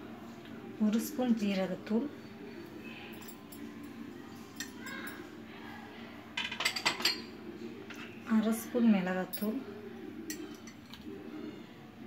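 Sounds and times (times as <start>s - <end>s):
metal spoon clinking against bowl: 6.4s - 7.3s, 10.3s - 11.0s.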